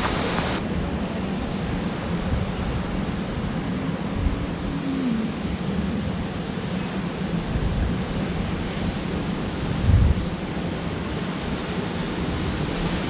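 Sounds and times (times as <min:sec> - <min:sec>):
small birds chirping: 0:00.0 - 0:00.6
steady outdoor rushing noise: 0:00.0 - 0:01.0.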